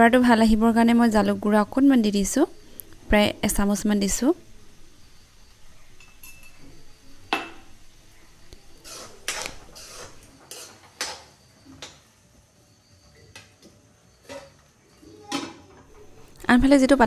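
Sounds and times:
metal utensil scraping a pan: 0:08.8 - 0:11.2.

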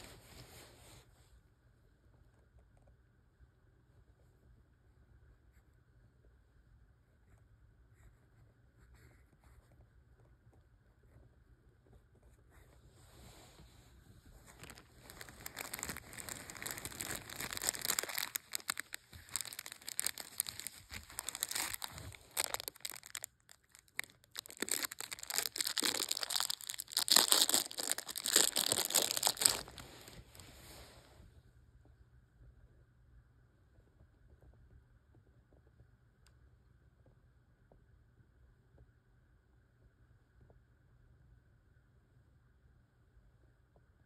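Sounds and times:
paper towel rustling and crinkling: 0:12.9 - 0:31.1.

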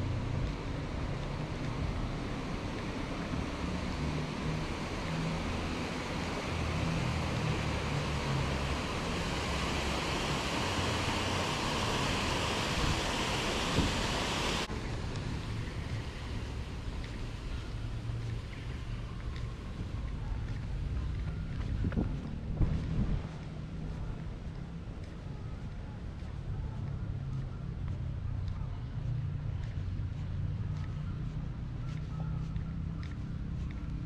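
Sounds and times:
wind buffeting microphone: 0:04.7 - 0:17.2, 0:17.8 - 0:34.0
hiss: 0:05.6 - 0:14.7.

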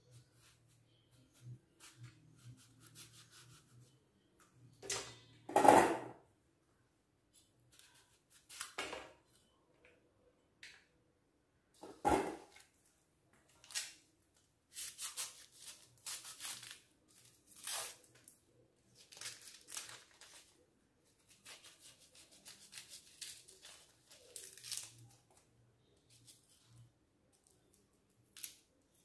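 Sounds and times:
onion skin crinkling and tearing: 0:14.7 - 0:18.4, 0:19.0 - 0:20.6, 0:21.2 - 0:25.4, 0:27.4 - 0:29.0.

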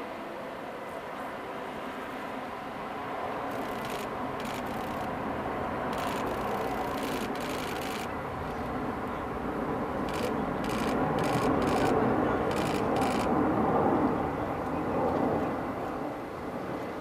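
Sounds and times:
jet engine noise: 0:00.0 - 0:17.0
camera shutter clicks: 0:10.1 - 0:13.3.

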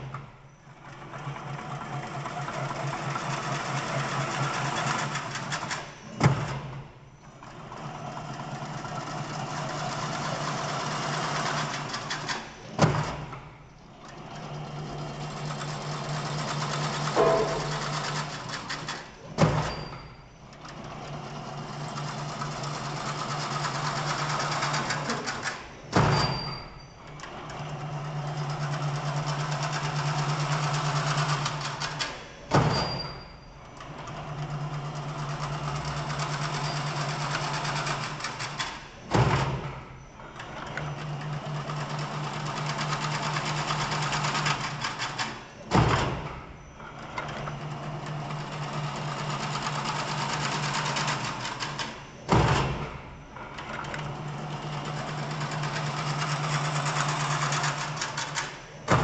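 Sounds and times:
rapid mechanical clatter: 0:00.0 - 0:59.0
loud machine clank: 0:16.4 - 0:20.4, 0:24.8 - 0:26.9, 0:50.3 - 0:53.6, 0:55.1 - 0:59.0.

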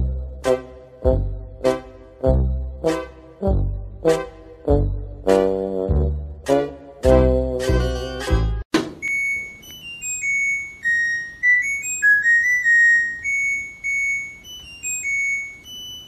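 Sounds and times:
washing machine beeping tune: 0:07.6 - 0:16.0.

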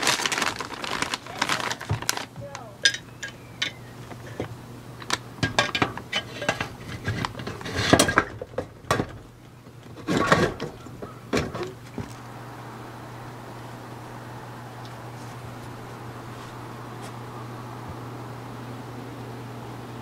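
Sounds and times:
wood chips rattling in metal tube: 0:00.0 - 0:12.2.

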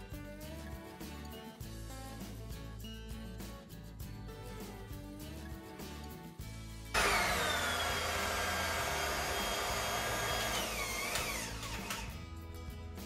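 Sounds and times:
electric hand mixer whirring: 0:07.0 - 0:12.1.

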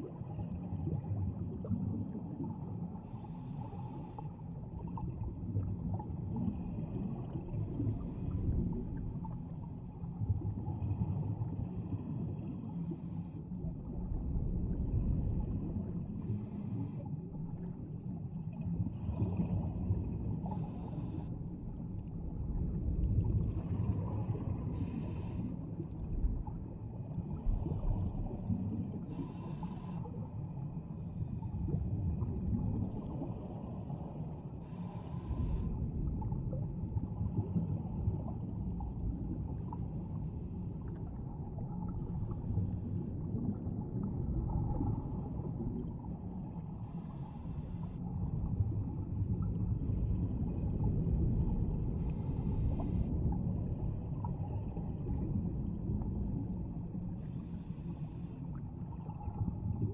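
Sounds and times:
scuba diver breathing underwater: 0:03.0 - 0:04.4, 0:16.1 - 0:17.1, 0:20.4 - 0:21.4, 0:24.1 - 0:25.7, 0:29.0 - 0:30.2, 0:34.6 - 0:35.9, 0:39.5 - 0:41.2, 0:46.8 - 0:48.0, 0:51.9 - 0:53.2, 0:57.2 - 0:58.5.

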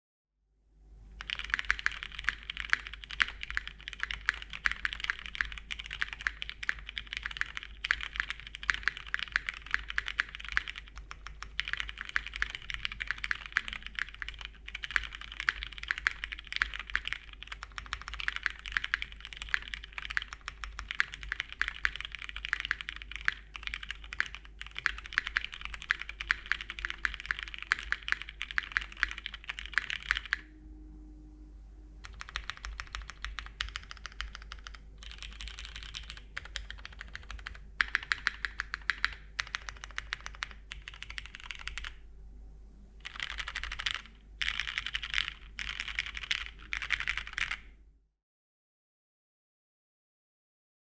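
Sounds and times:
mechanical keyboard typing: 0:01.2 - 0:30.4, 0:32.0 - 0:42.0, 0:43.0 - 0:47.7.

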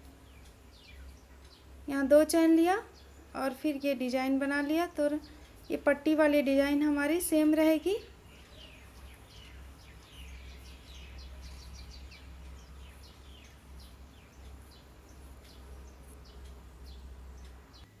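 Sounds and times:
steady low hum: 0:00.0 - 0:18.0
faint bird chirps: 0:08.0 - 0:18.0.

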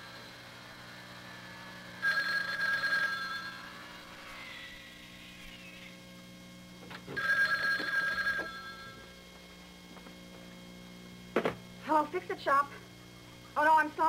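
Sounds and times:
faint steady hum: 0:00.0 - 0:14.0
telephone bell ringing: 0:02.0 - 0:04.0, 0:07.2 - 0:09.1.

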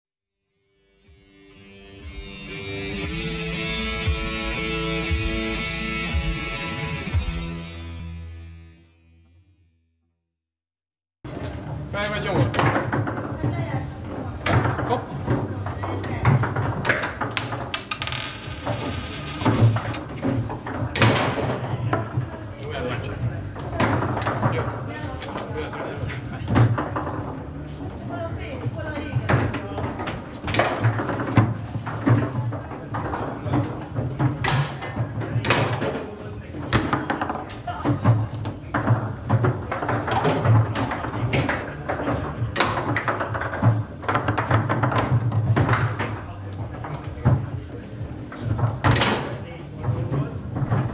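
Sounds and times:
table football clacking: 0:14.4 - 0:25.9, 0:29.2 - 0:46.2
table football knocks: 0:36.6 - 0:46.2.

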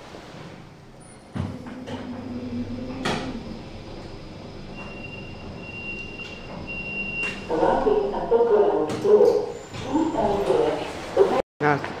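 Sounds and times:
lift motor hum: 0:00.6 - 0:08.5
high electronic beep: 0:04.8 - 0:07.5.

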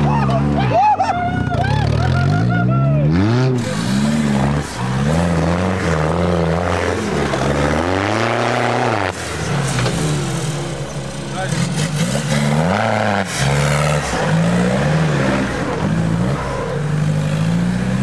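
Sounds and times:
engine revving: 0:00.0 - 0:18.0.

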